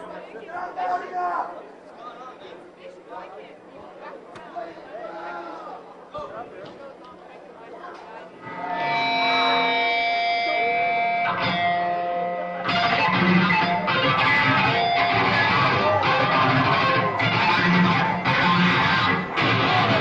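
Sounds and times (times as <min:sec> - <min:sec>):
electric guitar ringing notes: 0:08.4 - 0:20.0
heavy rock band playing: 0:12.6 - 0:20.0.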